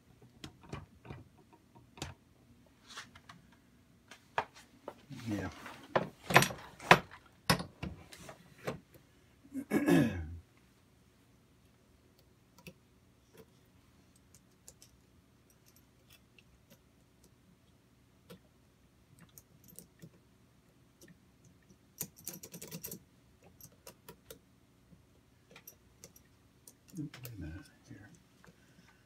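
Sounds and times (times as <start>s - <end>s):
small metal parts clicking: 22.0s - 24.0s.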